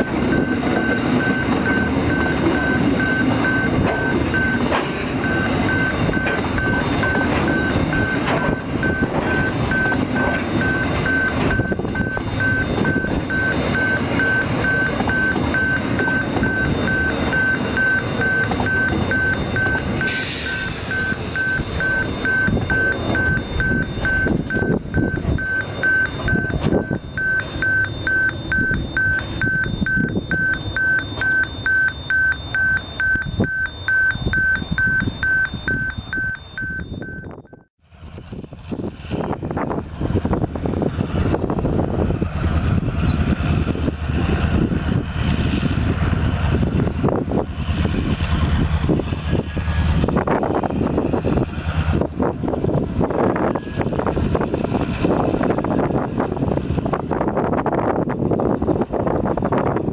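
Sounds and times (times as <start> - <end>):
train wheels clattering over rails: 0.0 - 17.4
level crossing warning bell: 0.0 - 37.7.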